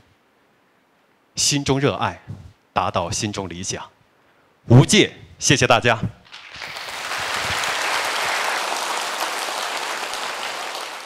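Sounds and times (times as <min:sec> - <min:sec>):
audience applauding: 0:06.3 - 0:11.0.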